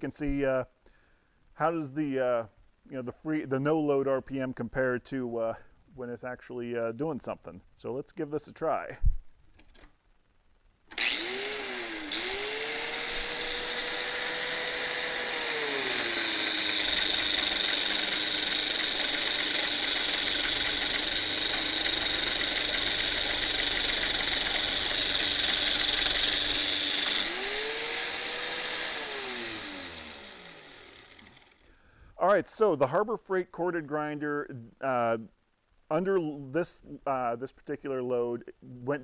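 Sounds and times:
angle grinder motor: 0:10.9 - 0:31.6.

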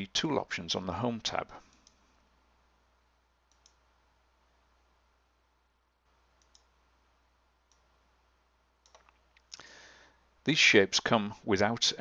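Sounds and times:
computer mouse clicks: 0:01.7 - 0:02.0, 0:03.5 - 0:03.8, 0:06.4 - 0:06.7, 0:07.7 - 0:07.9, 0:08.8 - 0:09.6.

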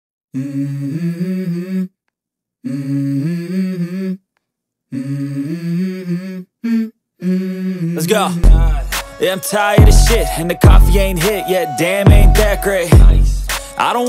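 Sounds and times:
person humming a melody: 0:00.4 - 0:02.0, 0:04.9 - 0:09.0, 0:09.8 - 0:13.9.

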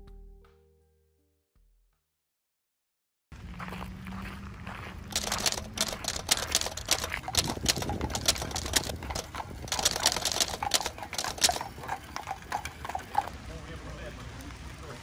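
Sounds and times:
hooves clip-clopping on pavement: 0:03.4 - 0:15.0.

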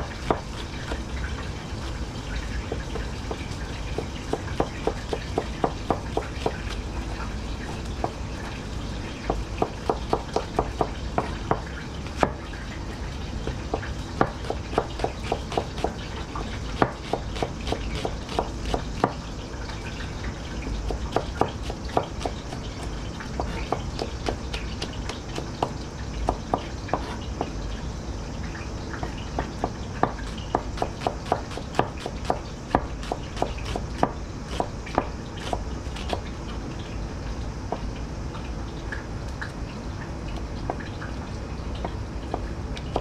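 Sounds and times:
knife chopping on cutting board: 0:00.0 - 0:01.0, 0:02.7 - 0:06.8, 0:09.2 - 0:12.4, 0:13.4 - 0:19.2, 0:20.9 - 0:22.6, 0:23.3 - 0:27.5, 0:29.4 - 0:36.2, 0:42.3 - 0:43.0.

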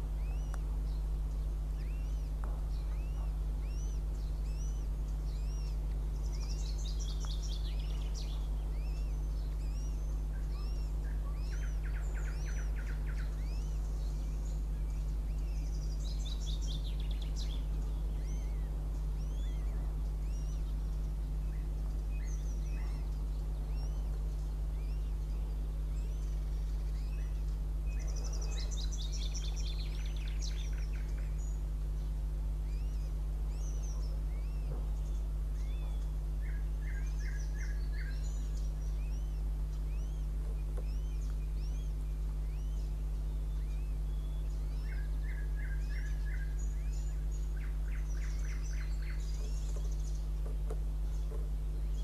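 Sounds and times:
small birds singing: 0:00.0 - 0:52.0
steady low hum: 0:00.0 - 0:52.0.

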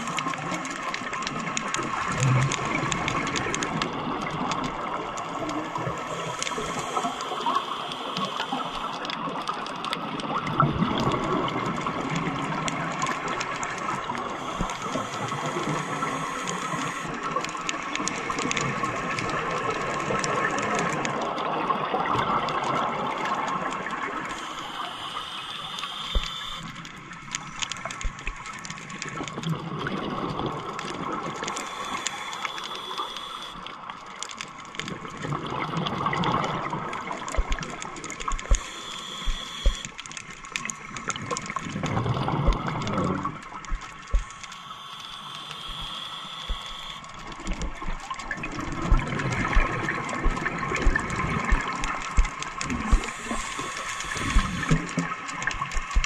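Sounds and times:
bubbles gushing and hissing: 0:00.0 - 0:56.0
small clicks: 0:00.0 - 0:56.0
scuba diver breathing underwater: 0:05.4 - 0:09.3, 0:13.0 - 0:19.1, 0:24.2 - 0:28.2, 0:30.8 - 0:33.7, 0:36.2 - 0:56.0.

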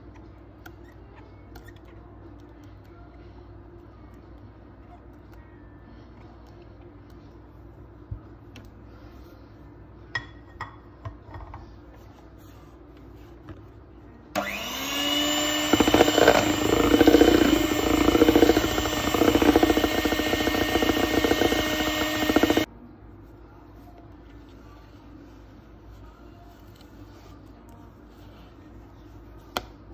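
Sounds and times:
beaters churning batter: 0:14.4 - 0:22.7
electric hand mixer whine: 0:14.4 - 0:22.7.

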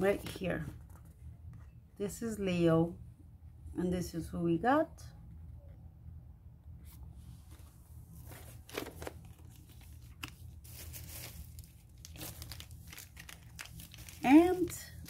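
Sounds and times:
packaging crinkling and rustling: 0:08.2 - 0:15.0.

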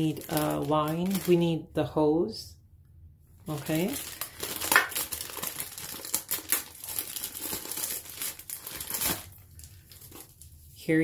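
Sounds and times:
plastic bag crinkling: 0:00.0 - 0:01.6, 0:03.4 - 0:10.9.

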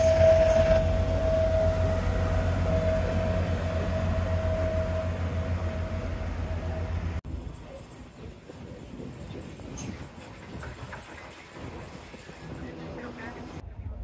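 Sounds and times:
boat engine rumbling: 0:00.0 - 0:14.0.

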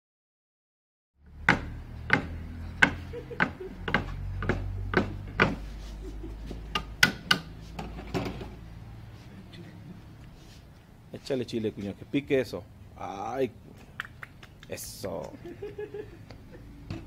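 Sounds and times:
sharp knocks on a table: 0:01.5 - 0:05.6.

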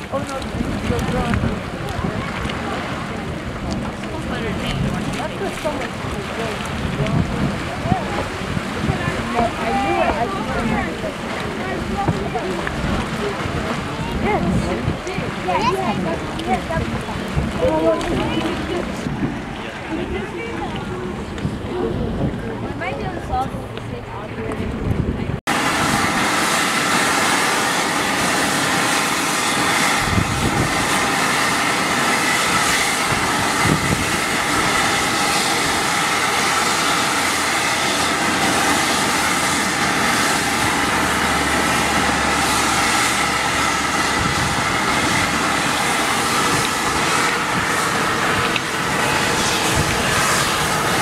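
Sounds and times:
steam vent hissing: 0:25.6 - 0:51.0.

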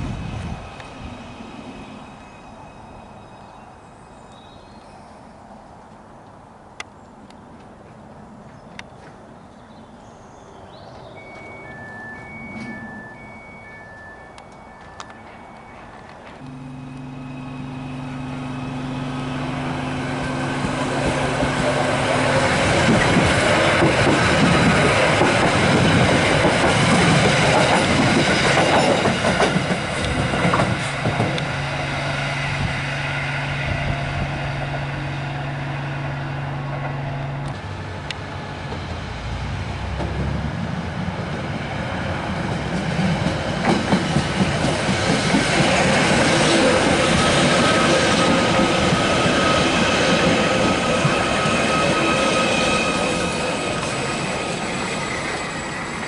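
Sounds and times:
low train hum: 0:00.0 - 0:09.9, 0:10.6 - 0:56.0
wheels clattering over rail joints: 0:20.2 - 0:31.6.

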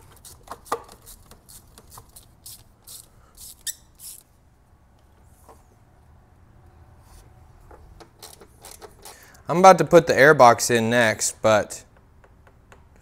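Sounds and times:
tools clicking and rattling: 0:07.7 - 0:09.4.

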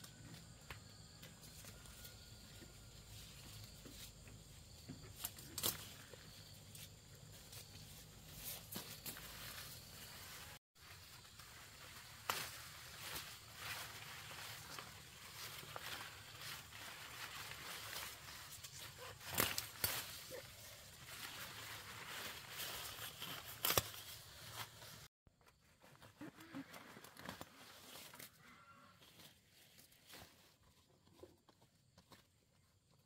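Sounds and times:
leaves rustling: 0:05.2 - 0:25.1
plant stems snapping: 0:19.2 - 0:20.2, 0:23.5 - 0:24.0.

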